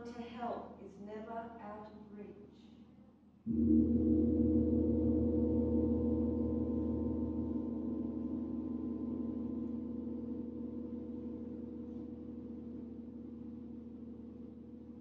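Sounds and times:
large gong ringing: 3.5 - 15.0.

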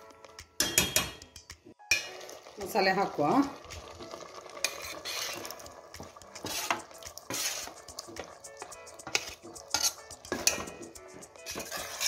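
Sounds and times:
metal utensils scraping pot: 3.2 - 12.0.

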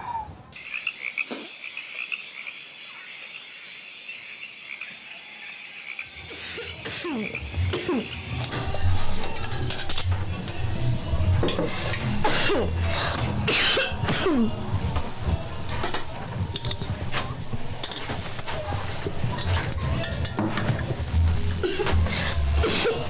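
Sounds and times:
woman coughing: 6.6 - 8.1, 12.2 - 12.8, 13.5 - 14.6, 21.6 - 22.0, 22.6 - 23.0
soft music with pulsing beat: 6.9 - 23.0
metal pots clanking: 8.4 - 10.6, 11.4 - 23.0.

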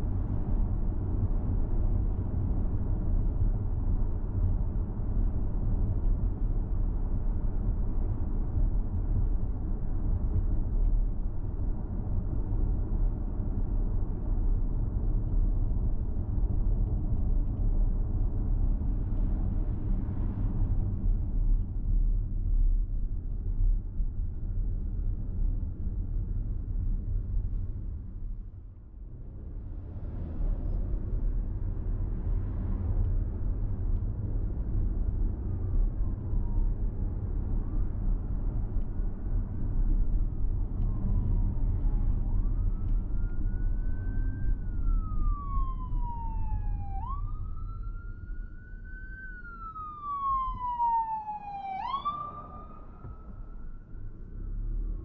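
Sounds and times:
car driving rumble: 0.0 - 55.0
emergency siren wailing: 40.8 - 55.0.

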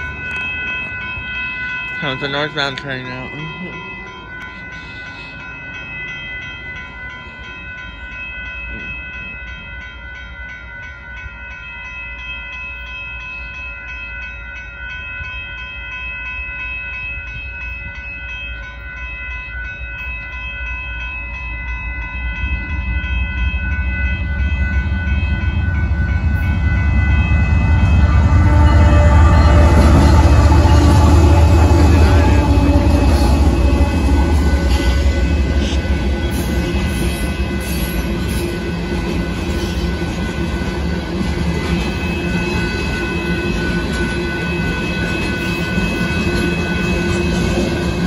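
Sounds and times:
crossing warning bell ringing: 0.0 - 48.0
diesel locomotive rumble: 22.2 - 48.0.

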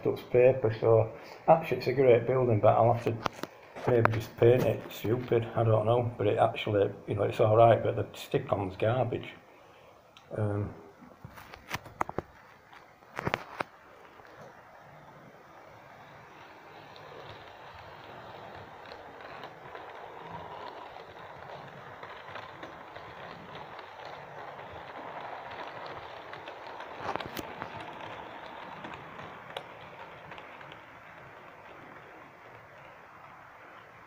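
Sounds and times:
model train motor and wheel rumble: 0.0 - 34.0.

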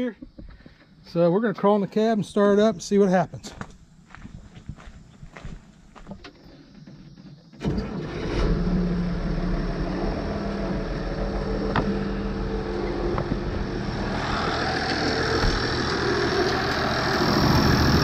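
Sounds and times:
tractor diesel engine starting and idling: 6.4 - 18.0.

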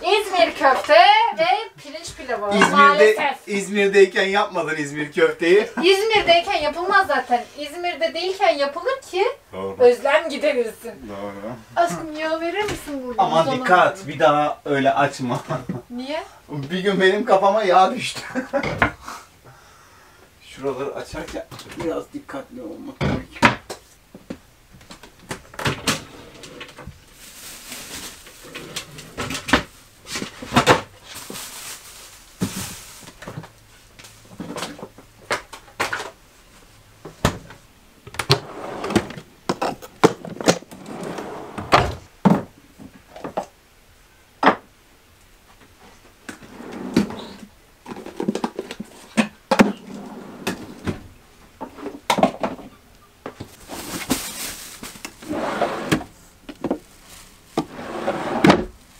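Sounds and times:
rustling: 25.9 - 37.2, 53.4 - 58.9.

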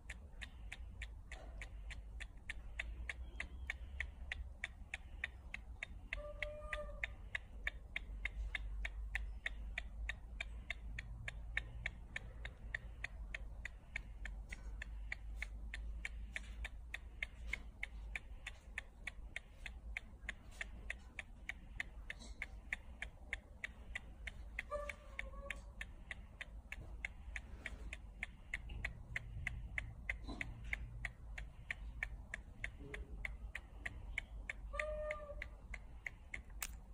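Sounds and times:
monkey sucking fingers: 0.0 - 36.9.

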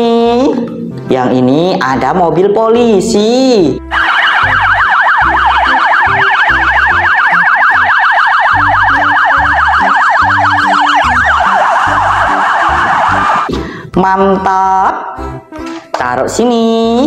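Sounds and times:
police siren yelping: 3.9 - 13.5.

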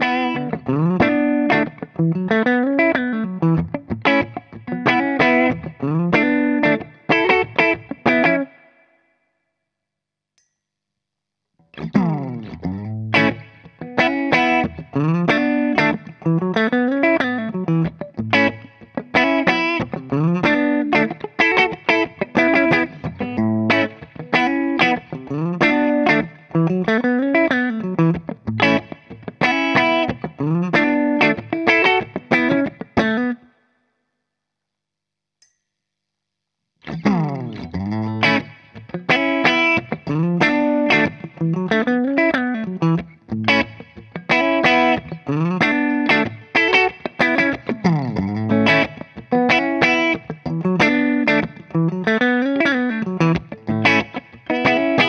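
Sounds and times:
clean electric guitar riff: 0.0 - 9.0, 11.7 - 33.5, 36.8 - 55.0.

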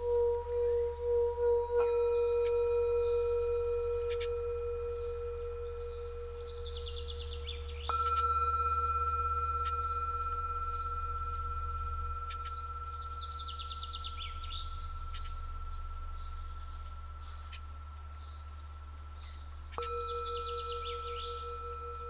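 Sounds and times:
birds chirping: 0.0 - 22.0
higher singing bowl struck: 0.0 - 22.0
low singing bowl tone: 0.0 - 22.0.

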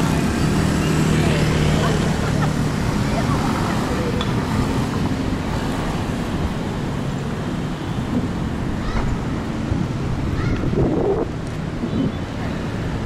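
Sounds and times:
traffic rumble and road noise: 0.0 - 13.0.

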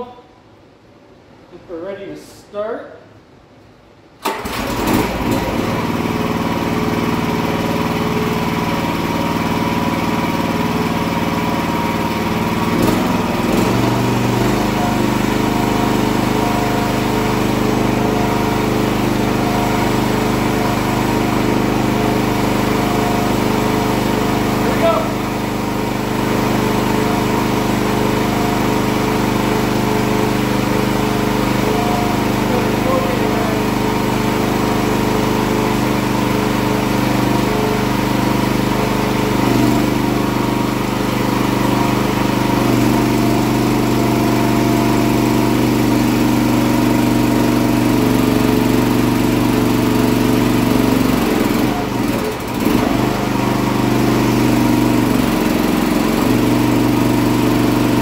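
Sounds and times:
small gasoline engine running: 4.3 - 58.0.

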